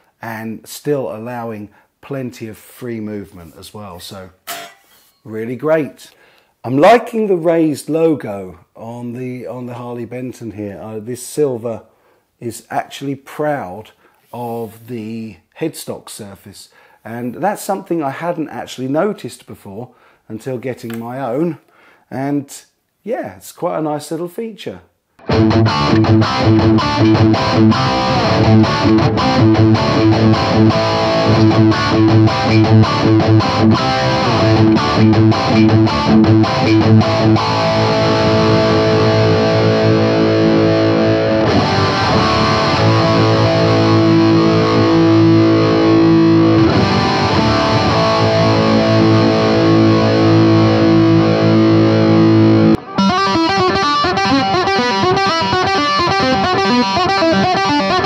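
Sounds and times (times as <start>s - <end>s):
distorted electric guitar: 25.2s - 58.0s.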